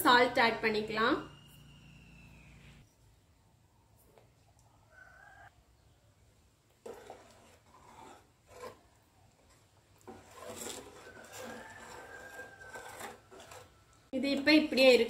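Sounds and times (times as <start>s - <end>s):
spoon scraping metal pot: 6.8s - 15.0s.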